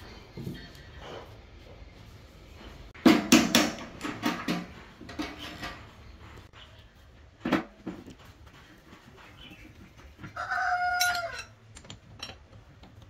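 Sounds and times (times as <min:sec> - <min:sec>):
metal tools knocking and clanking: 0:03.1 - 0:06.0, 0:10.9 - 0:13.0.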